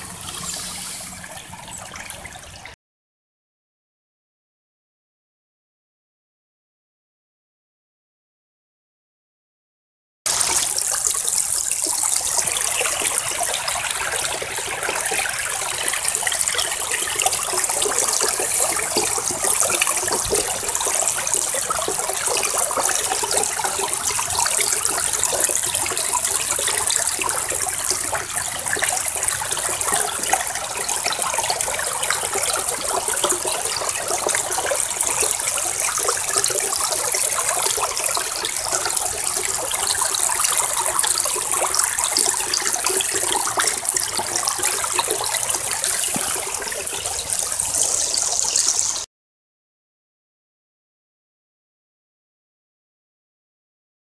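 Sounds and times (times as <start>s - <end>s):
water rushing through sluice box: 0.0s - 2.8s, 10.3s - 49.1s.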